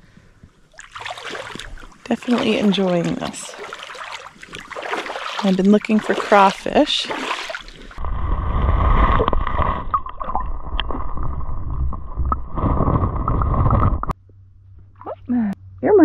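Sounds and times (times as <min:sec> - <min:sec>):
underwater water wash: 0:00.6 - 0:14.2
stones knocking underwater: 0:08.8 - 0:14.2.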